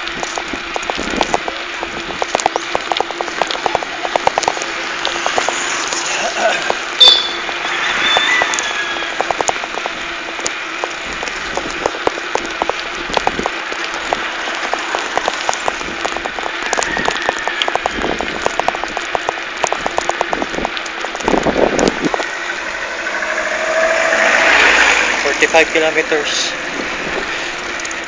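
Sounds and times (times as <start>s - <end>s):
bicycle clicks and rattles: 0.0s - 28.0s
wind and tyre hiss: 0.0s - 28.0s.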